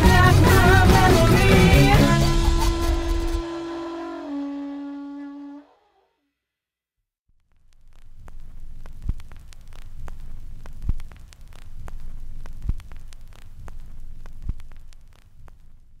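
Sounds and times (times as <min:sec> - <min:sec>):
crackling static: 0:07.3 - 0:16.0.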